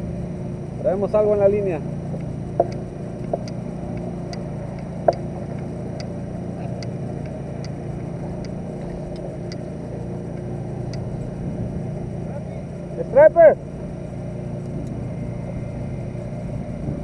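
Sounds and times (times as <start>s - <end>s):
low rumble: 0.0s - 17.0s
fishing reel ticking: 0.6s - 11.4s.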